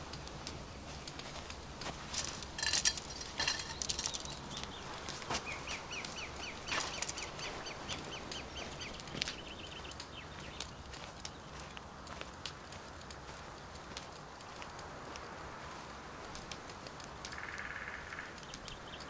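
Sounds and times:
camping gear rustling and knocking: 0.0s - 9.5s
bird chirping rapidly: 3.0s - 10.7s.

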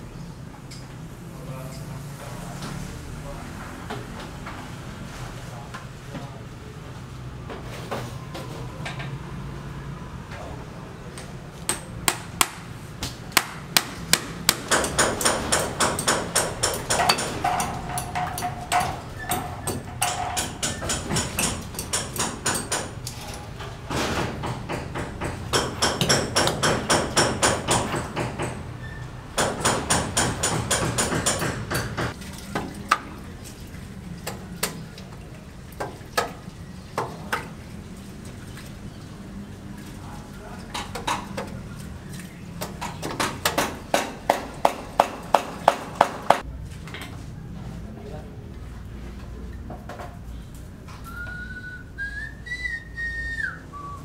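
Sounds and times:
scattered hammer knocks: 13.3s - 23.0s, 23.9s - 28.6s, 29.4s - 32.2s, 42.8s - 46.4s.

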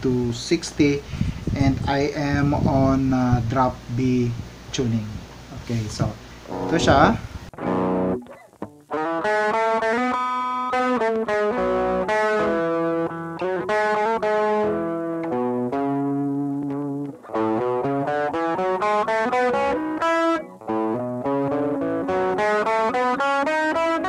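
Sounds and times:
overdriven electric guitar riff: 6.4s - 24.0s.

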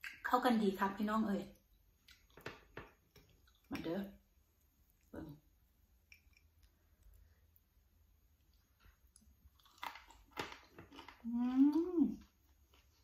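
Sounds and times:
person chewing food: 1.9s - 3.7s, 6.0s - 13.0s
person humming mmm: 11.2s - 12.3s.

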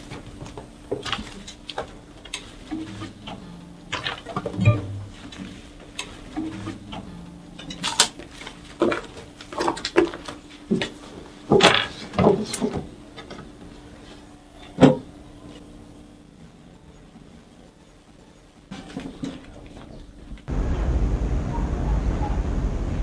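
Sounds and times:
objects knocking and banging: 2.6s - 13.4s.

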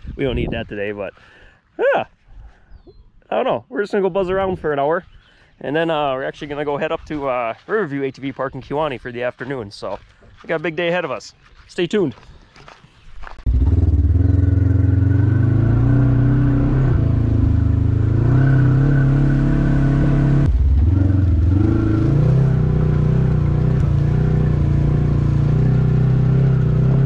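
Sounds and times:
off-road vehicle engine running: 13.4s - 27.0s.

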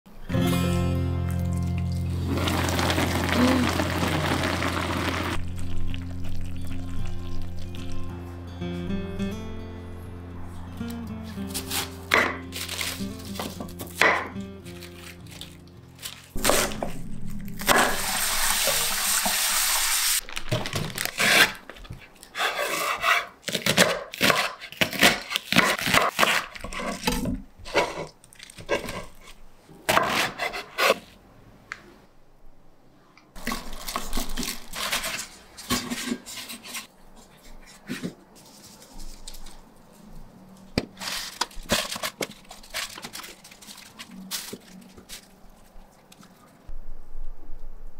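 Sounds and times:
cabbage leaves rustling: 2.0s - 8.0s, 11.3s - 21.9s, 33.4s - 46.5s.

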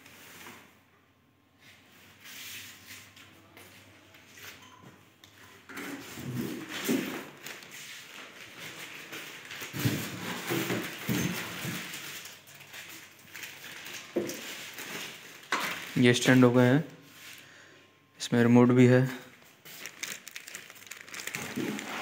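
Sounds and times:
plastic wrap rustling: 6.0s - 17.5s, 19.3s - 22.0s.

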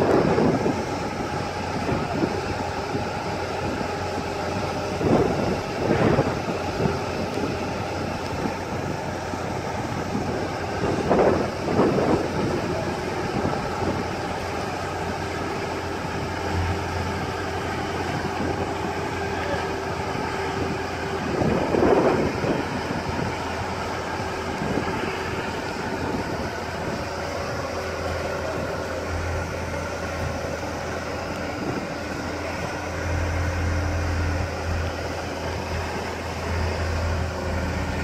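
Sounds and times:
crane diesel engine running: 0.0s - 38.0s
thin steady whine: 0.0s - 38.0s
wind buffeting microphone: 0.0s - 38.0s.

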